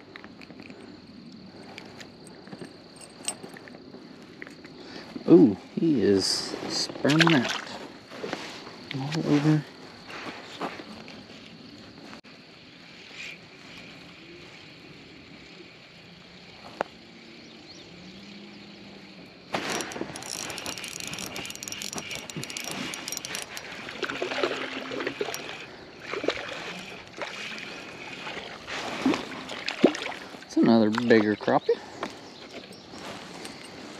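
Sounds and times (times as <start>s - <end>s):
fishing reel clicking: 19.6s - 25.8s.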